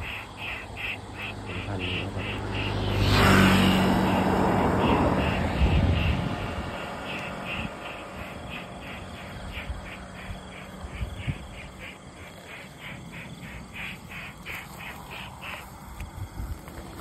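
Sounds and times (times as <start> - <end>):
footsteps through grass: 14.4 - 17.0.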